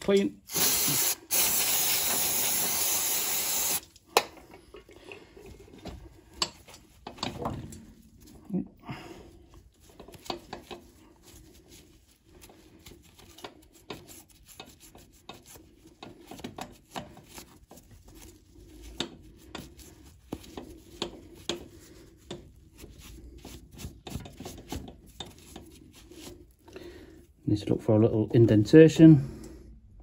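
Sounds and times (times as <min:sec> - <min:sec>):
cloth rubbing on metal: 0:09.3 - 0:27.3.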